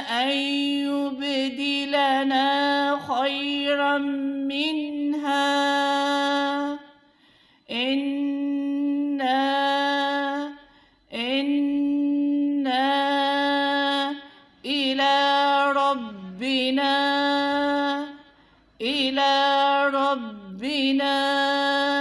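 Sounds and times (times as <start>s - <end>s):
woman chanting: 0.0s - 22.0s
breaths: 7.0s - 7.7s, 10.6s - 11.1s, 14.2s - 14.6s, 18.2s - 18.8s.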